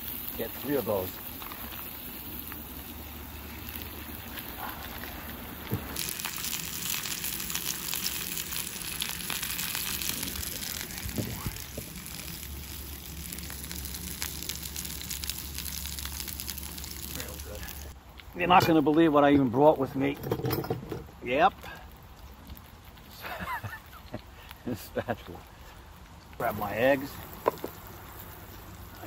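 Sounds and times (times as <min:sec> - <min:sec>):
sausages sizzling in a pan: 0:00.0 - 0:18.0, 0:26.3 - 0:29.0.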